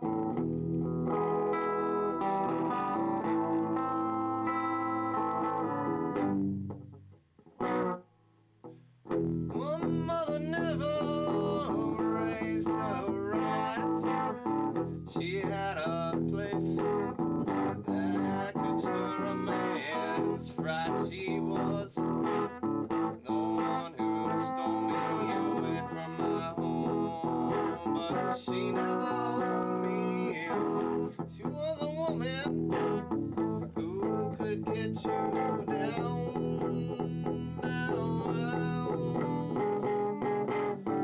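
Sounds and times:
guitar accompaniment: 0.0 - 41.0
man singing: 9.5 - 41.0.

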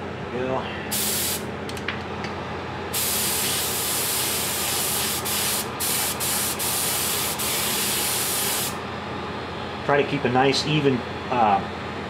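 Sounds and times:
steady low hum: 0.0 - 12.0
spray gun hissing: 0.9 - 1.4, 3.0 - 8.8.

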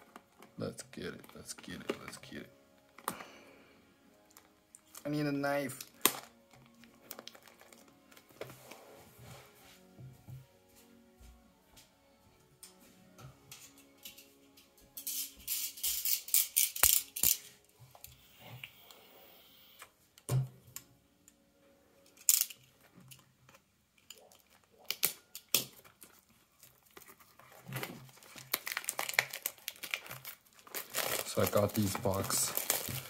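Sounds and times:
plastic rustling: 4.3 - 9.5, 24.0 - 33.0.

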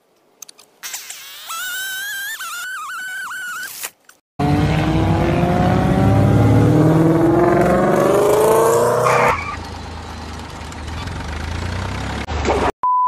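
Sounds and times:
engine starting and accelerating: 4.4 - 12.7.

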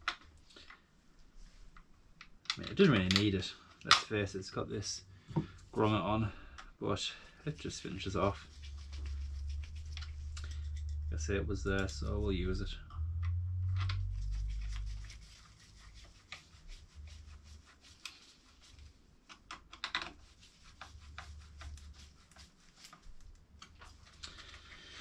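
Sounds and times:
low rumble: 8.0 - 16.2.

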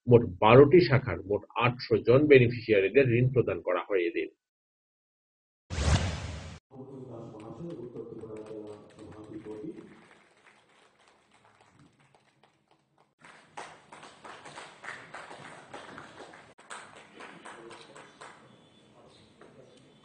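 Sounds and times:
sharp taps and claps: 7.7 - 18.4.

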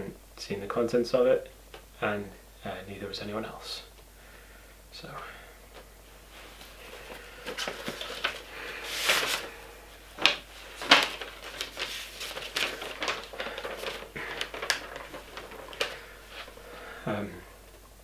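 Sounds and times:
paper crinkling and rustling: 6.3 - 17.0.

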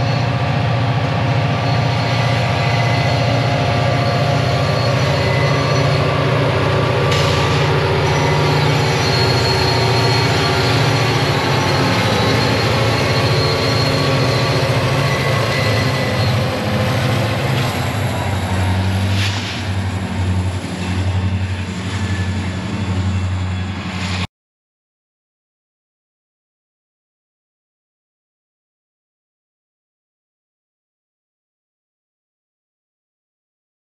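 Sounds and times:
diesel locomotive engine drone: 0.0 - 24.3
train wheel noise: 0.0 - 24.3.

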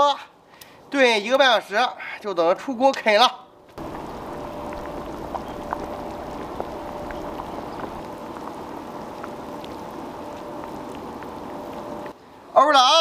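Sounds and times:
broth boiling in a wok: 3.8 - 12.5.

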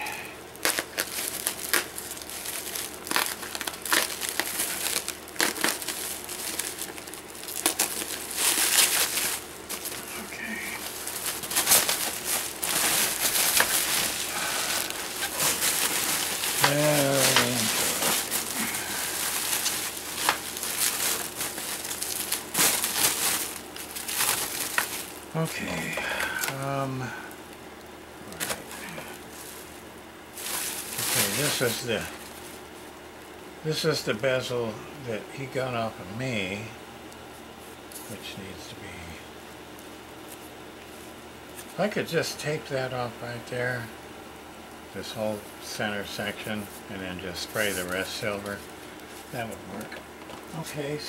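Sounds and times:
bubble wrap crinkling and crackling: 0.0 - 33.4, 37.1 - 38.2, 45.0 - 51.0.

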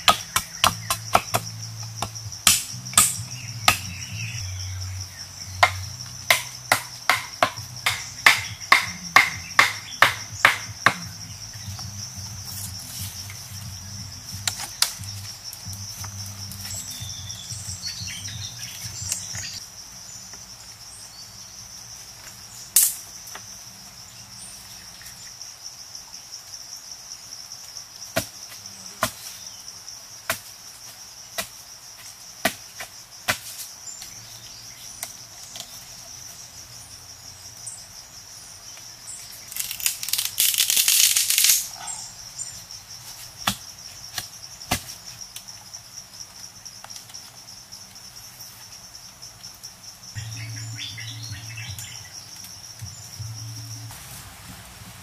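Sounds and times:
wooden stakes knocking: 0.0 - 4.0, 5.6 - 11.9
insects droning: 0.0 - 55.0.

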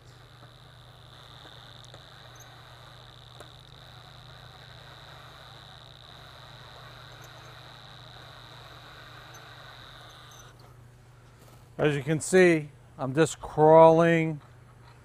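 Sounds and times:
power drill whining: 0.0 - 10.7.

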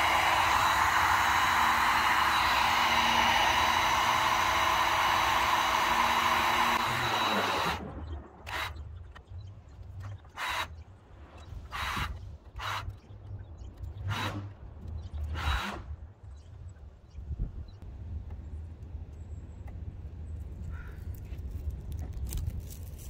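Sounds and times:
heat gun blowing: 0.0 - 7.9
rustling: 21.1 - 23.0.

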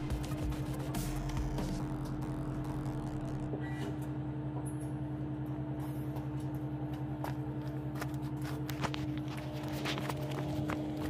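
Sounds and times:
engine idling: 0.0 - 3.5.

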